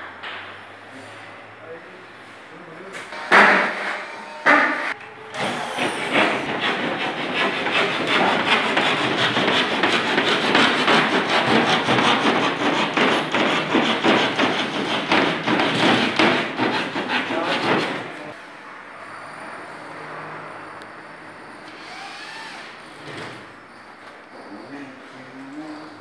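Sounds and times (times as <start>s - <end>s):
hand tool scraping plasterboard: 5.4s - 18.3s
sharp knocks: 6.1s - 18.1s.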